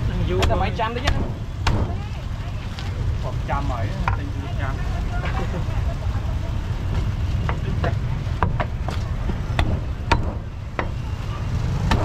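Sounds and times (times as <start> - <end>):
cleaver chopping on wooden block: 9.6 - 11.0.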